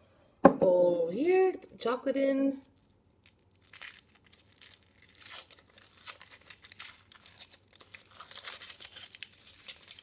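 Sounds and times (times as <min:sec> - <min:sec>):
foil wrapper crinkling and tearing: 0:02.6 - 0:10.0.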